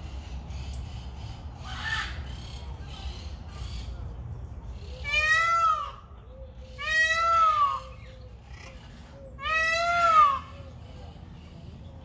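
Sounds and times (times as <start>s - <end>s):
peacock calling: 4.8s - 11.1s.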